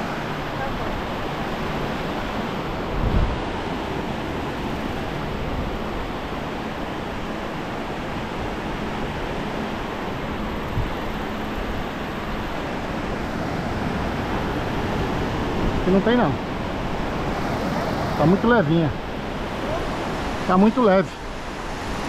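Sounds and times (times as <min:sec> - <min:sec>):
wind on microphone: 0:00.0 - 0:08.7, 0:09.4 - 0:18.3
ocean surf washing on beach: 0:00.0 - 0:22.0.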